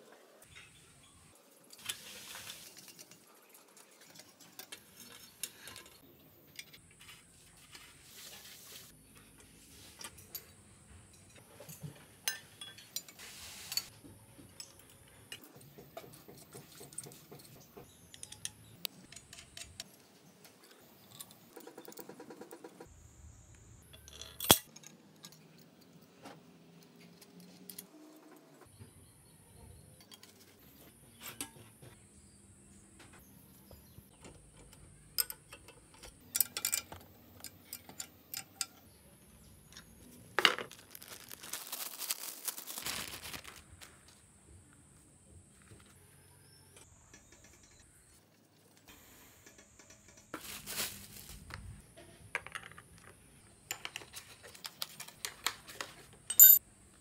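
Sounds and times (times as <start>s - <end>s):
metal parts clinking: 23.9s - 25.8s, 35.2s - 38.8s, 56.3s - 56.6s.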